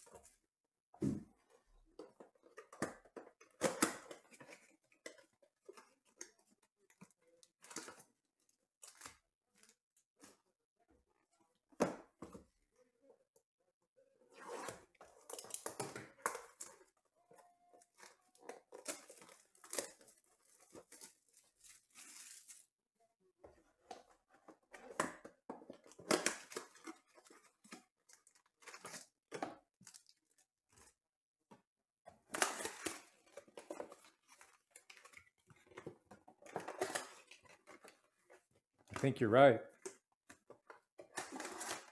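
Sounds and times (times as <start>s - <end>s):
cardboard and plastic tearing: 14.4s - 16.9s, 17.8s - 22.7s, 24.8s - 30.4s, 32.2s - 38.5s, 39.8s - 41.9s.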